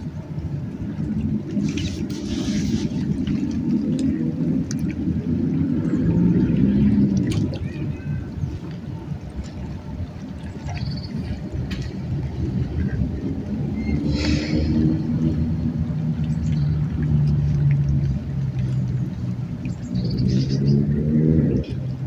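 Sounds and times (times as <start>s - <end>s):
low engine hum: 0.0s - 22.0s.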